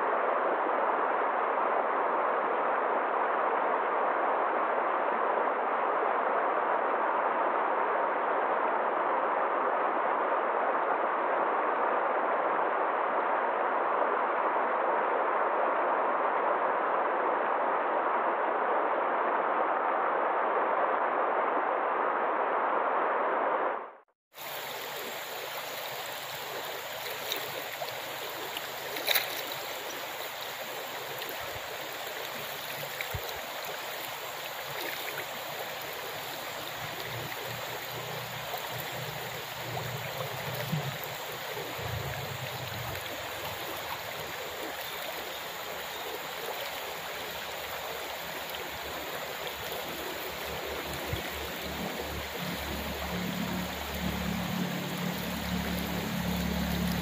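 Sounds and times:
running water rushing: 24.4s - 57.0s.

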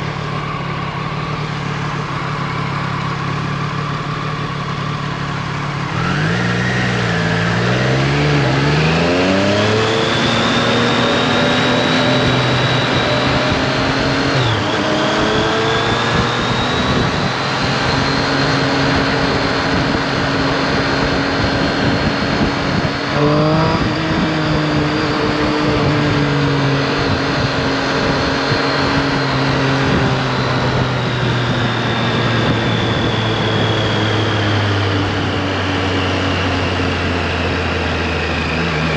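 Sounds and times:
motorcycle engine revving: 0.0s - 38.9s
wind rushing over microphone: 6.9s - 38.6s.

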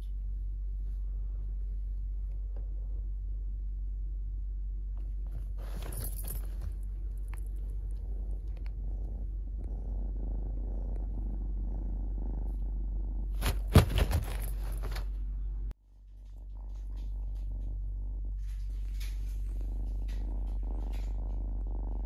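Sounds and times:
kitten purring: 0.0s - 22.0s
fabric rustling: 13.4s - 15.2s.

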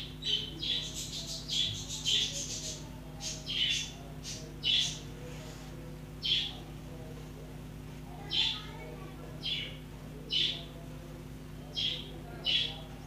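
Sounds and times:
small bird chirping: 0.0s - 5.1s, 6.2s - 6.6s, 9.4s - 10.7s, 11.7s - 12.8s.

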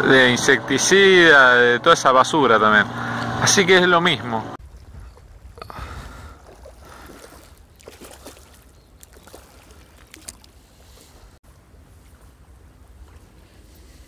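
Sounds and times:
low wind rumble: 0.0s - 7.8s
small waves lapping: 4.6s - 14.0s.

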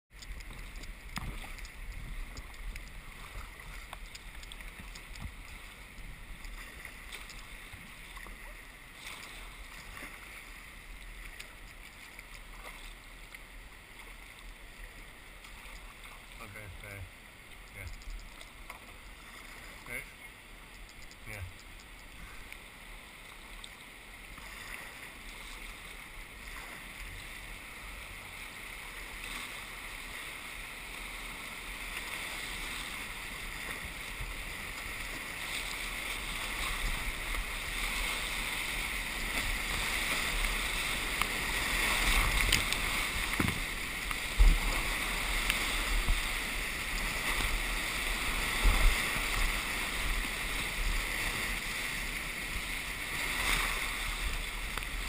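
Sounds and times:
rushing whitewater: 21.2s - 55.0s.

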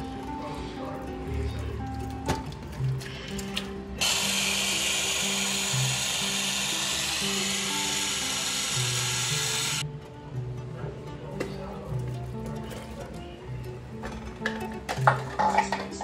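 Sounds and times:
blender motor running: 4.0s - 9.8s.

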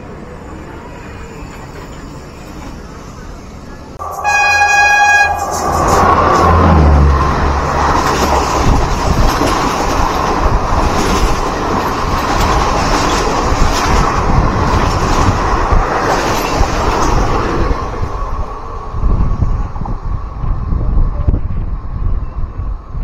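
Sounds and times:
train wheel and wind rush: 0.0s - 23.0s
train wheel clacks: 7.5s - 17.7s.

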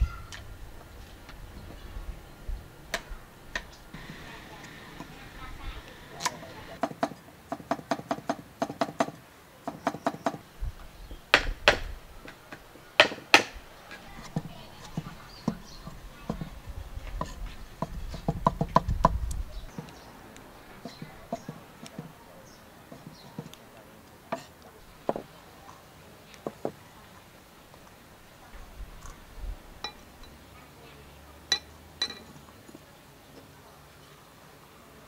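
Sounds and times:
cleaver chopping on wooden block: 11.4s - 11.9s, 13.0s - 13.6s.

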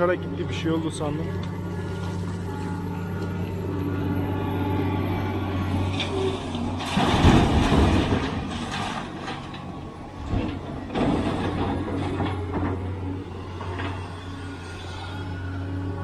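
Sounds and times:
excavator diesel engine running: 0.0s - 16.0s
soil dumped into truck bed: 6.7s - 9.2s.

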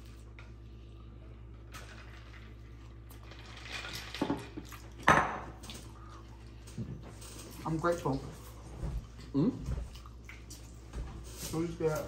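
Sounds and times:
steady low hum: 0.0s - 12.0s
person chewing: 8.5s - 10.8s.

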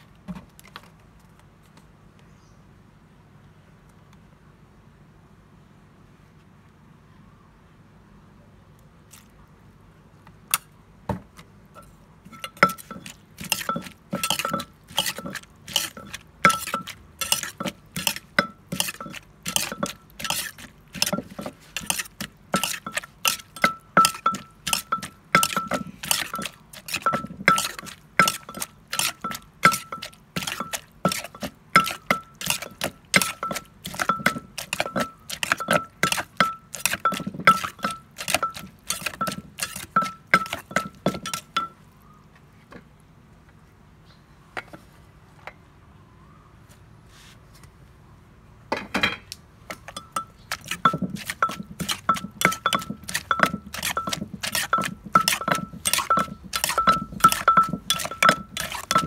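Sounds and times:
metal spoon stirring: 12.3s - 41.8s, 49.7s - 59.0s
pestle pounding in clay mortar: 12.3s - 41.8s, 49.7s - 59.0s.

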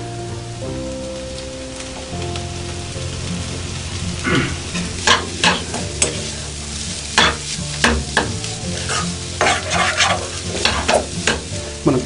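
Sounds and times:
light sizzle: 0.0s - 12.0s
spatula scraping frying pan: 3.2s - 11.9s.

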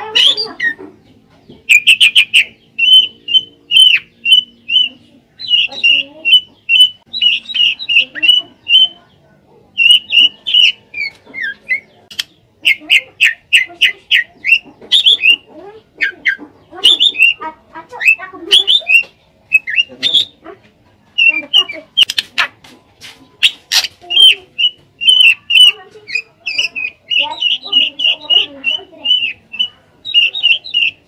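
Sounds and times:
bird singing chattering notes: 0.0s - 22.6s, 23.2s - 31.0s.

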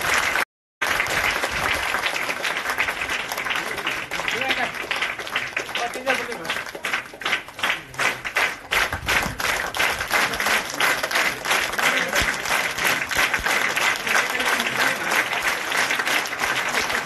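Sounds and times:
people clapping: 0.0s - 17.0s.

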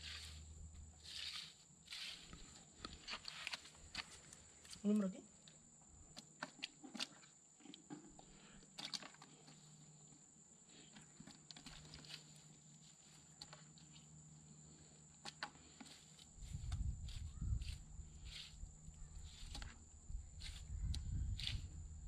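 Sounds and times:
rustles of wet net: 0.0s - 4.9s.

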